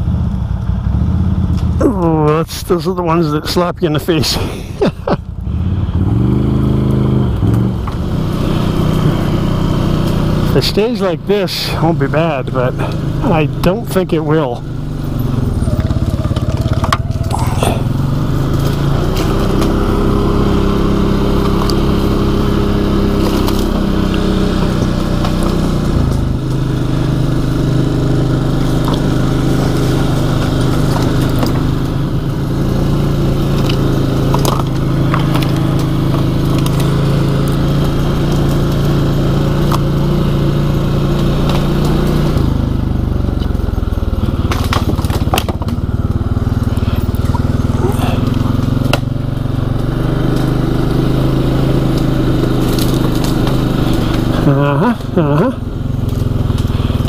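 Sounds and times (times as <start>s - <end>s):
atv engine running: 0.0s - 57.0s
branches cracking against machine: 15.7s - 17.6s, 18.4s - 42.6s, 44.3s - 57.0s.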